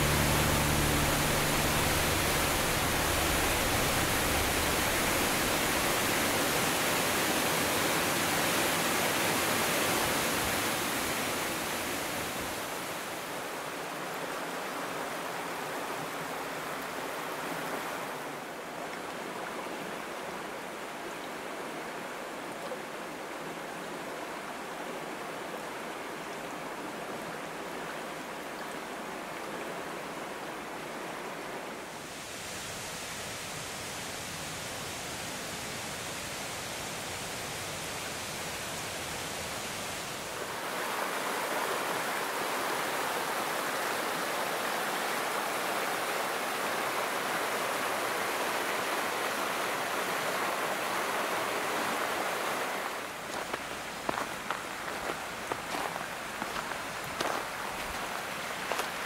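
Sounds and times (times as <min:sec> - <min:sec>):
music track: 0:00.0 - 0:06.1
waterfall rushing: 0:00.0 - 0:18.5, 0:31.8 - 0:59.0
stream flowing: 0:00.0 - 0:59.0.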